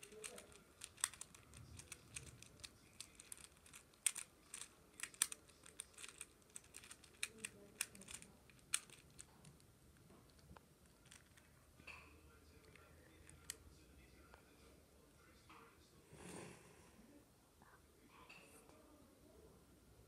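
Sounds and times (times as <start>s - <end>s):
plastic fidget toy clicking: 0.0s - 9.3s.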